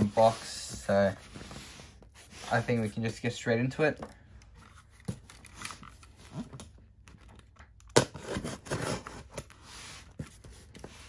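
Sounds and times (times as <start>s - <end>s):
cardboard rustling and scraping: 0.0s - 11.0s
cardboard tearing rip: 8.0s - 9.4s.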